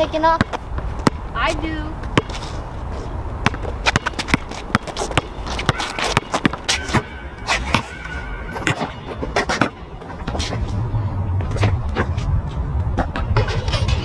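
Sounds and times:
basketball bouncing on asphalt: 0.0s - 14.0s
low steady rumble: 9.8s - 14.0s.

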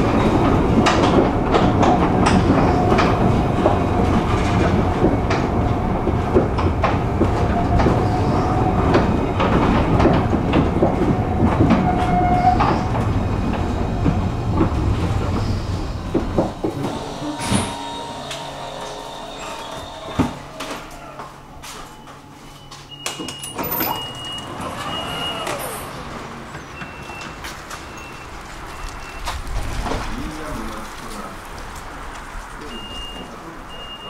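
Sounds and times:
tram rumbling on track: 0.0s - 34.0s
wheels clicking over rail joints: 0.0s - 34.0s
steady whine: 12.9s - 23.0s.

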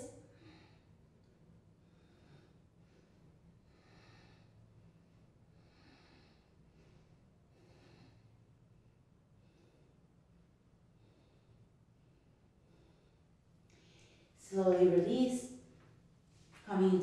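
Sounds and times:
low steady hum: 0.0s - 17.0s
woman breathing through nose: 1.8s - 8.5s.

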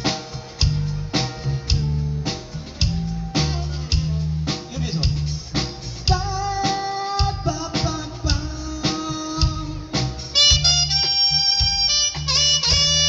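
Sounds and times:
wind instrument lead melody: 0.0s - 4.4s, 9.1s - 13.0s
drums beating: 0.0s - 13.0s
rock band playing: 0.0s - 13.0s.

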